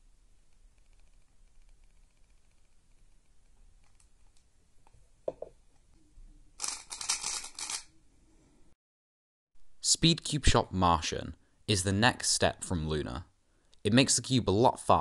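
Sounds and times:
speed cube clicking and clattering: 0.4s - 4.3s, 6.6s - 7.9s.

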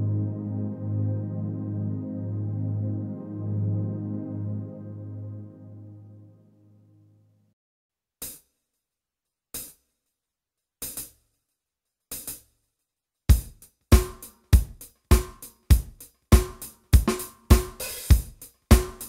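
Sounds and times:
bass drum and snare beat: 13.3s - 19.0s
drum hits: 13.3s - 19.0s.

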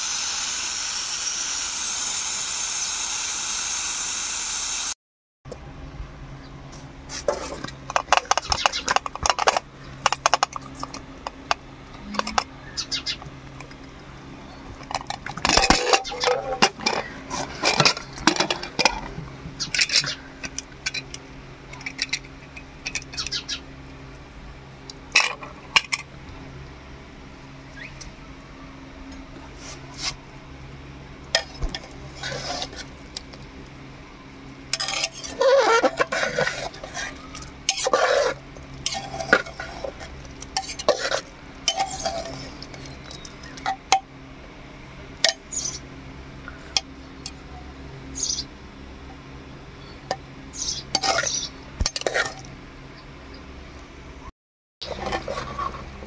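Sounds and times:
steady low hum: 5.5s - 56.0s
ladle clinking and scraping in pot: 34.8s - 42.9s.

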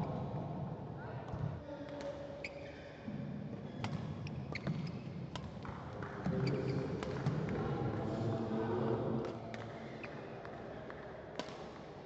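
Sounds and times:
murmur of voices: 7.5s - 10.9s.

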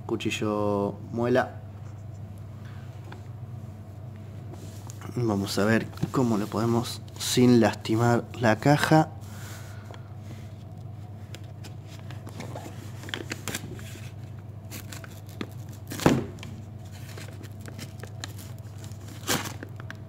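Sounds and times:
cardboard parcel being opened: 11.5s - 20.0s.

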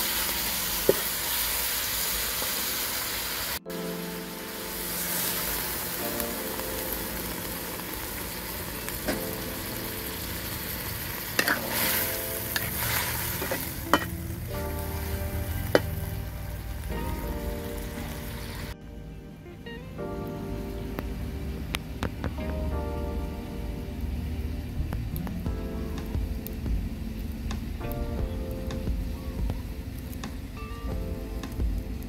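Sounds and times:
food sizzling in a wok: 0.0s - 18.8s.

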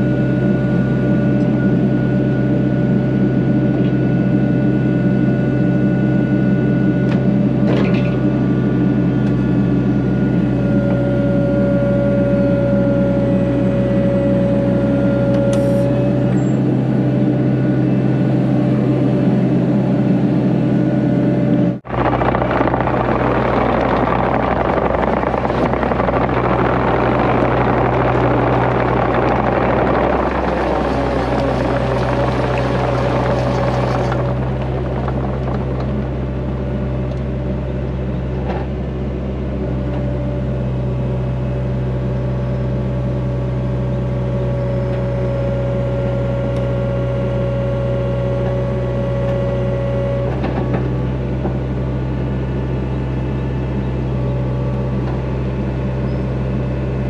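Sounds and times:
excavator diesel engine: 0.0s - 57.0s
thin hydraulic whine: 10.0s - 16.7s.

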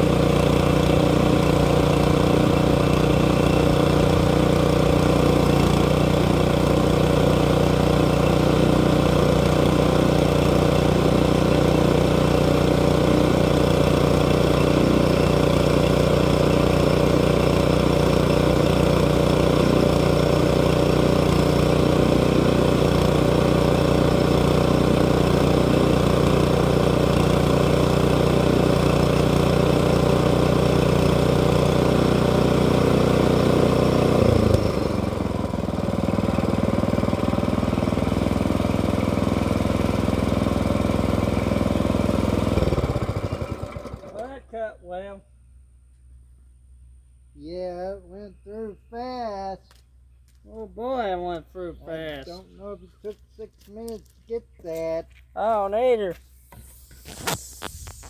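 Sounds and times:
small gasoline engine running: 0.0s - 44.5s.

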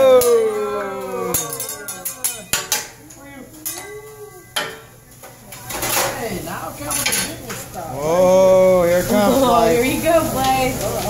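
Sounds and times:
person's long falling cry: 0.0s - 1.9s
metal spatula clanking on griddle: 1.3s - 4.0s.

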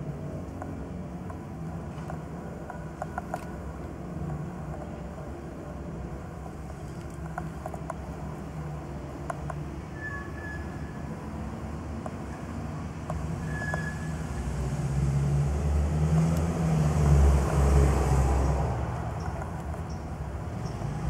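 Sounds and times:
vehicle passing rumble: 14.0s - 21.0s.

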